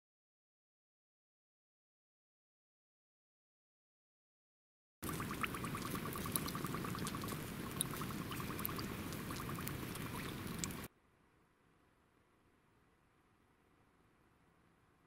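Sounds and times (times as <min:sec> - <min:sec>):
fire crackling and hissing: 0:05.0 - 0:10.9.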